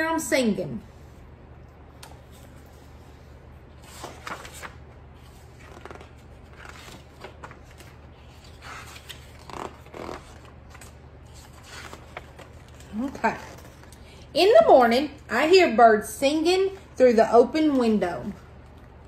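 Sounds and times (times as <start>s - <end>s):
steady low hum: 0.0s - 19.0s
book pages turning: 2.0s - 14.1s.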